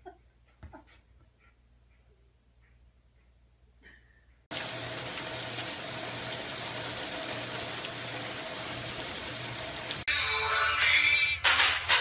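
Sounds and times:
rain on a wooden deck: 4.5s - 10.1s.

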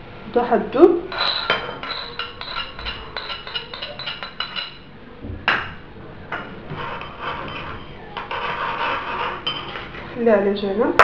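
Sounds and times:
spoon clinking against bowl: 1.1s - 4.9s, 9.4s - 9.8s.

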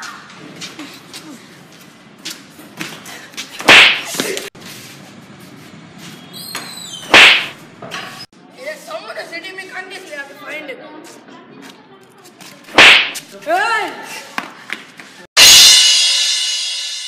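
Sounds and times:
loud sharp cracks with swish: 3.6s - 4.3s, 7.1s - 7.6s, 12.7s - 13.2s.

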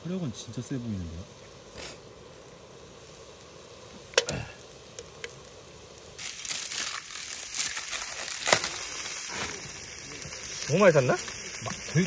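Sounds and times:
plastic bag rustling: 6.2s - 9.8s.

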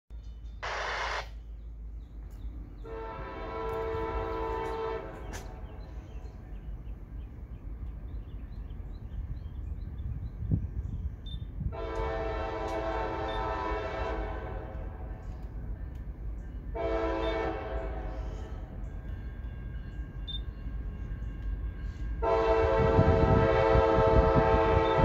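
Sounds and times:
low train rumble: 0.1s - 25.0s
locomotive air horn blasts: 2.8s - 5.7s, 11.7s - 15.1s, 16.7s - 18.8s, 21.1s - 25.0s.

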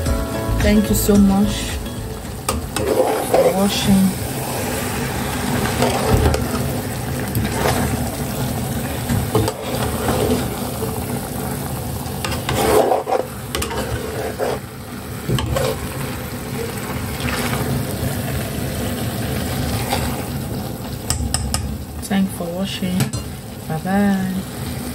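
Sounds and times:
spoon stirring soup in pot: 2.4s - 3.8s.

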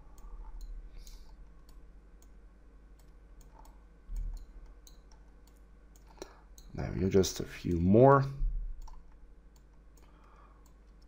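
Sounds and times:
computer mouse clicking: 3.0s - 6.7s, 8.8s - 11.0s.

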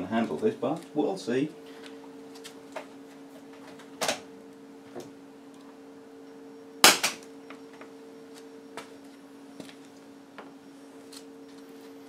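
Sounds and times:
sharp electrical crack: 6.8s - 7.2s
wire exploding with loud bang: 6.8s - 7.2s.

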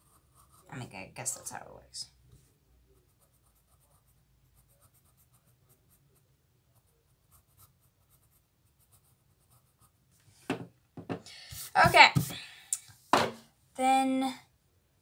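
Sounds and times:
pencil scratching on paper: 0.0s - 1.0s, 3.0s - 10.0s.

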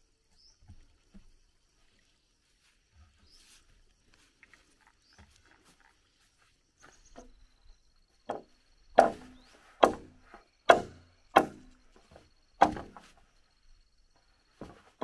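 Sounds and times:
blade chopping bamboo: 8.3s - 13.2s.

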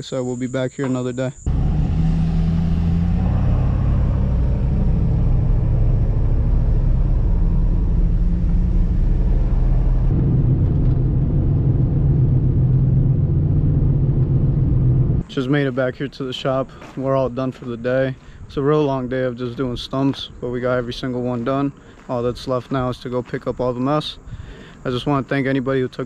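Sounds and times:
road noise: 0.9s - 26.0s
vehicle engine hum: 1.4s - 16.0s.

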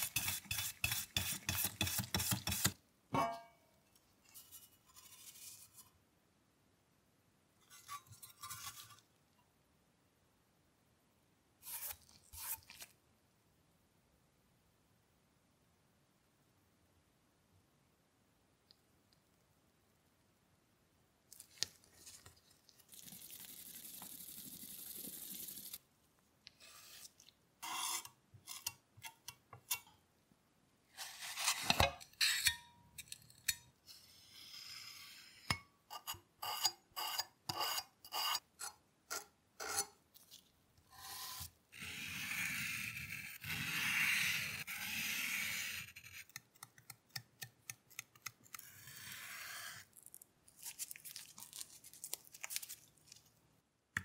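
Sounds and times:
putty knife scraping paste on metal: 0.0s - 3.5s, 7.7s - 9.0s, 11.6s - 12.9s, 26.5s - 30.0s, 31.0s - 34.0s, 34.6s - 40.0s.

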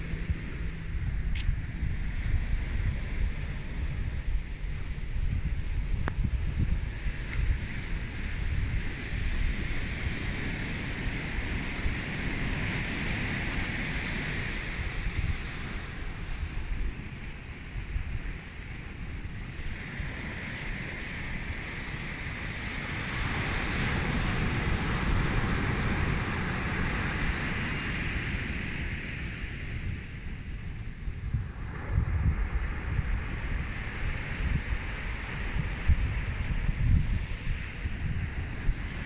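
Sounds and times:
surf breaking on beach: 0.0s - 39.0s
wind on microphone: 0.0s - 39.0s.

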